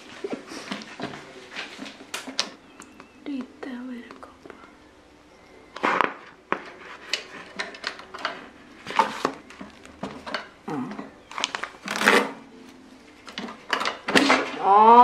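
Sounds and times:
paper pages rustling: 0:06.5 - 0:10.2, 0:11.3 - 0:13.4.

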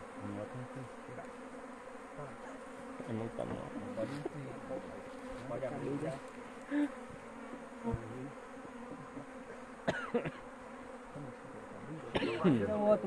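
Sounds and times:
honeybees buzzing: 0:00.0 - 0:13.0.

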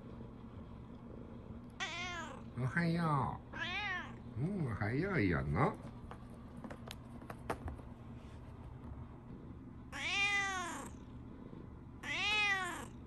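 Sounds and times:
cat meowing: 0:01.8 - 0:02.5, 0:03.5 - 0:04.2, 0:09.9 - 0:11.0, 0:12.0 - 0:13.0.

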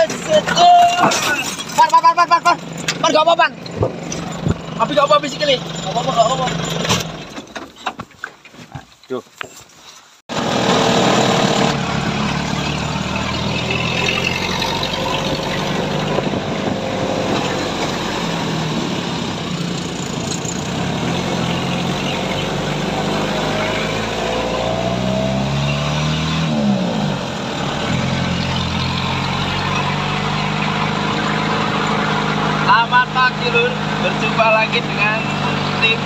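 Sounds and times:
jeep engine revving while driving: 0:10.3 - 0:36.0.

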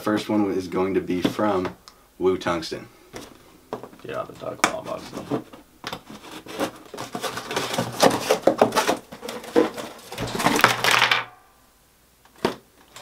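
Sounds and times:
cardboard rustling: 0:03.1 - 0:11.2.

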